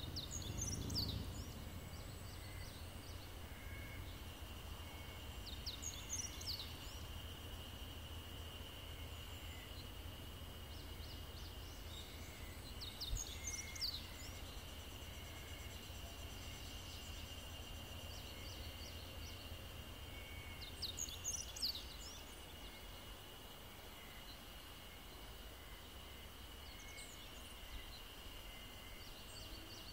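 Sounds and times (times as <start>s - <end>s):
low rumble: 0.0s - 3.1s
high-pitched insect drone: 0.0s - 29.9s.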